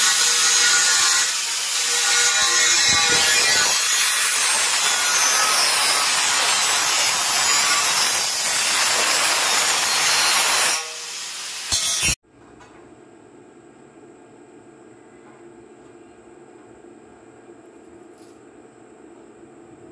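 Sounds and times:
angle grinder grinding metal: 0.0 - 12.2.

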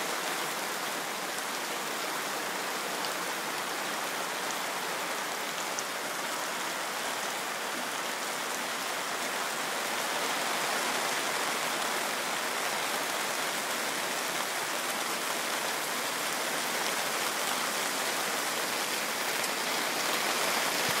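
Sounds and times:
rain on gravel: 16.5 - 21.0.

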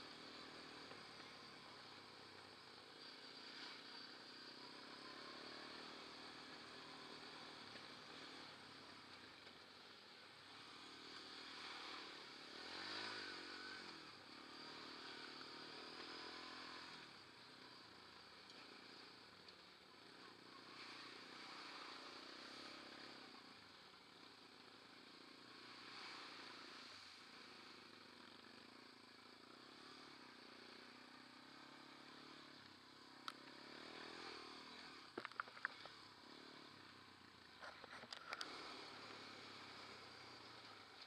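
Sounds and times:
quad bike engine running: 0.0 - 41.0
sharp knocks and clatters: 35.2 - 36.0.

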